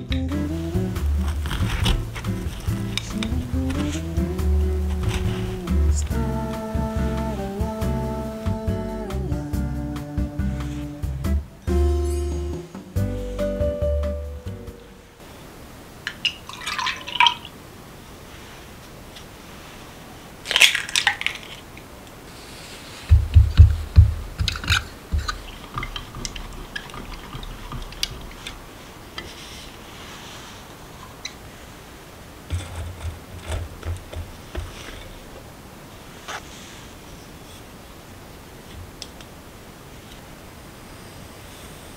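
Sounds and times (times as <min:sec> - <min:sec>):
liquid pouring: 0:16.0 - 0:17.6, 0:24.4 - 0:28.9
whisking knocks in jug: 0:23.1 - 0:28.4.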